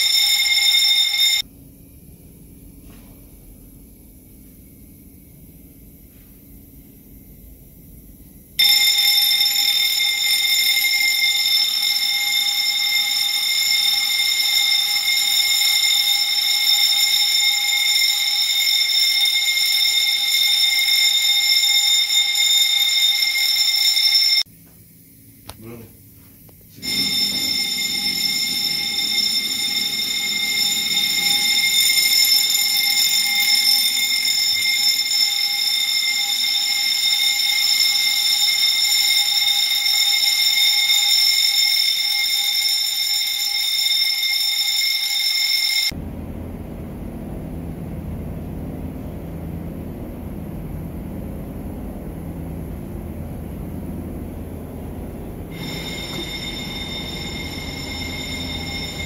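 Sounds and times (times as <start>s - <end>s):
fire alarm bell ringing: 0.0s - 1.5s, 8.6s - 24.5s, 26.8s - 59.0s
low steady rumbling: 45.9s - 59.0s.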